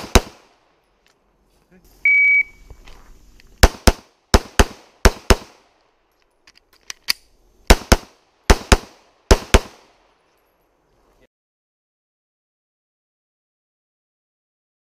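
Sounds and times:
pistol shots: 0.0s - 0.6s, 3.6s - 5.7s, 7.7s - 10.0s
magazine reload clicks: 6.1s - 7.4s.

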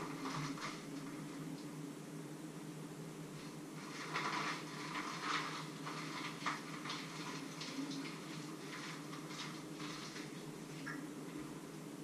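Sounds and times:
wrapper rustling: 0.0s - 1.2s, 3.8s - 10.8s.

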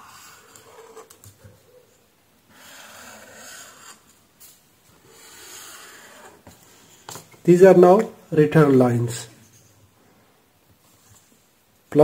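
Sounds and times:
pen rubbing across paper: 0.0s - 1.1s, 2.5s - 4.1s, 5.0s - 6.6s.

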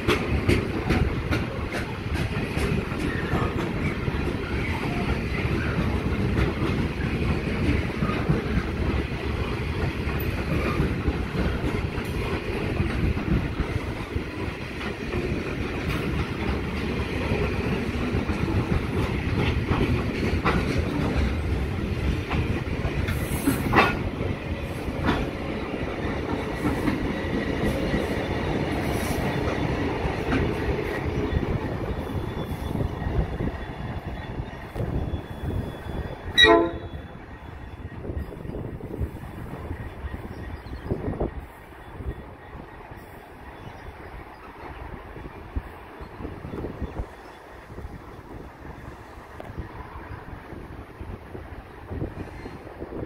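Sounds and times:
wheels clacking over rail joints: 0.0s - 37.1s
diesel locomotives passing: 0.0s - 53.0s
train wagons rumbling: 0.0s - 53.0s.

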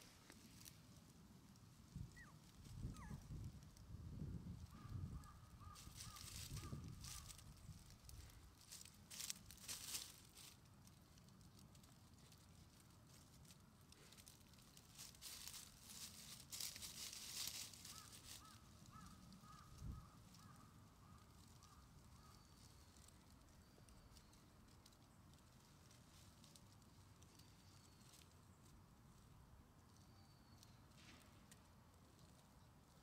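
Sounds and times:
small squeaky chirps: 1.9s - 3.4s, 21.5s - 24.8s, 27.2s - 28.4s
faint high bird-like calls: 1.9s - 3.5s, 4.6s - 7.8s, 17.1s - 24.6s, 27.2s - 28.3s, 30.0s - 31.3s
faint rustling: 5.8s - 29.2s.

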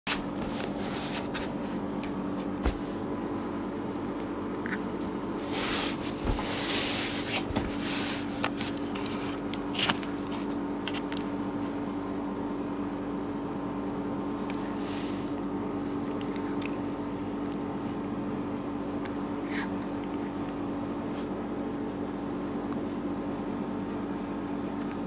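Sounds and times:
steady low hum: 0.1s - 25.0s
handling rustles and clicks: 5.9s - 11.3s
cat sniffing: 14.5s - 18.0s.

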